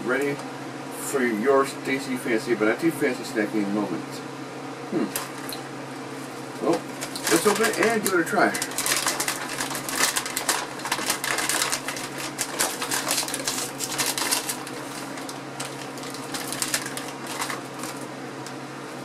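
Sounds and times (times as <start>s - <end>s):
chip bag crinkling: 6.3s - 19.0s.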